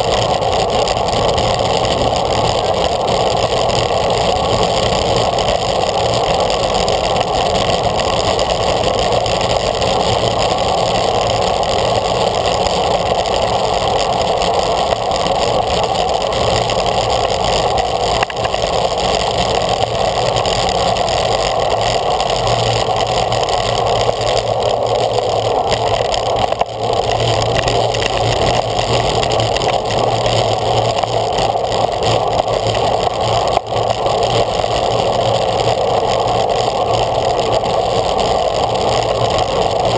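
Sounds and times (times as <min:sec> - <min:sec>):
bike tyre noise on road: 0:00.0 - 0:39.9.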